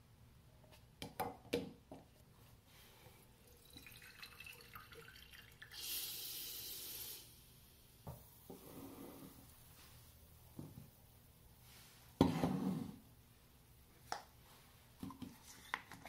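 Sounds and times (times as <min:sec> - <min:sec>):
coffee trickling with faint hiss: 0:02.8 - 0:11.0
plunger pushing air hiss: 0:05.7 - 0:07.6.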